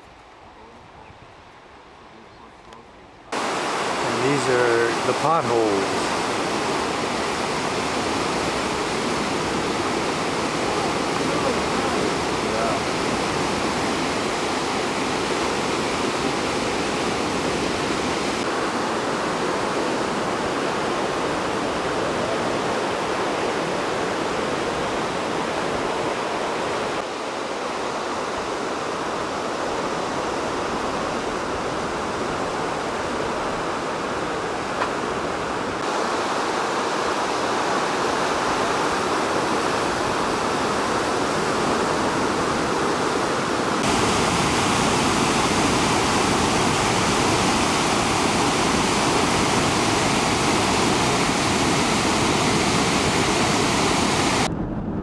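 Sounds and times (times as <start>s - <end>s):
river water rushing over rocks: 3.3s - 54.5s.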